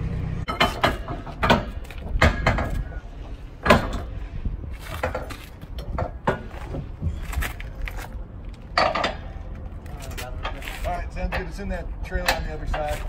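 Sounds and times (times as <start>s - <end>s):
metal clanks and clinks: 8.6s - 9.5s.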